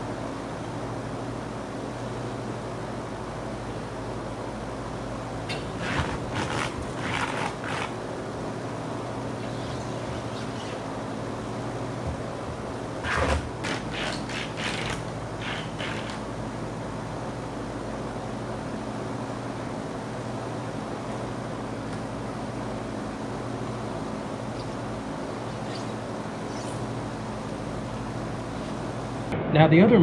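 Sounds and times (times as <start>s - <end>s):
steady low hum: 0.0s - 30.0s
tape peeling off roll: 5.8s - 8.0s, 13.0s - 16.2s.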